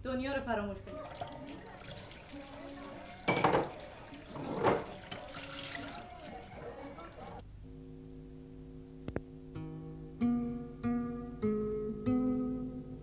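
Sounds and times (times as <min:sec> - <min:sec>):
dishes washed by hand: 0:00.8 - 0:07.4
water splashing: 0:00.8 - 0:07.4
tap water running into sink: 0:00.9 - 0:07.4.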